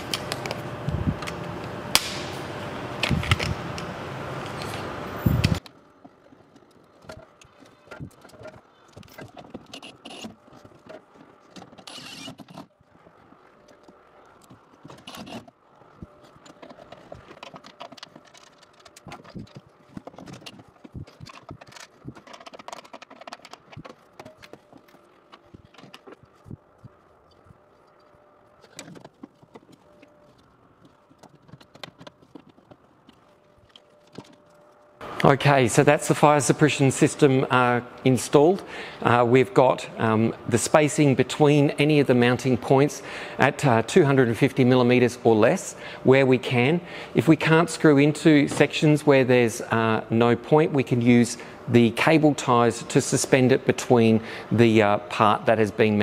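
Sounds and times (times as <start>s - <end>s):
loud steady noise with clicks: 0.0s - 8.6s.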